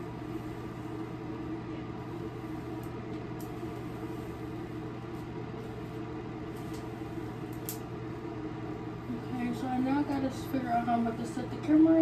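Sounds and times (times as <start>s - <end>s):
low mechanical hum: 0.0s - 12.0s
hairbrush swishing through hair: 2.0s - 7.6s.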